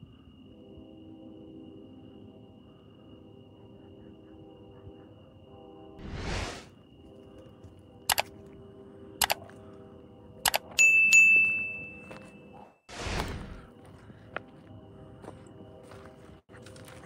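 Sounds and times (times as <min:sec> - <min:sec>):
faint droning background: 0:00.0 - 0:17.0
whoosh: 0:06.0 - 0:06.7
sharp clicks: 0:08.1 - 0:08.3, 0:09.2 - 0:09.4, 0:10.4 - 0:10.8
bell-like ding: 0:10.8 - 0:12.3.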